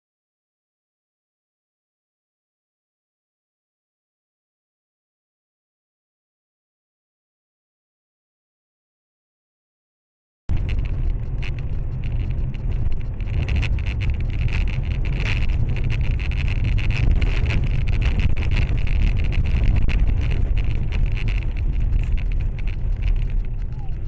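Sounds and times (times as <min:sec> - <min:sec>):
car road noise rumble: 0:10.5 - 0:24.0
small crackles: 0:10.5 - 0:24.0.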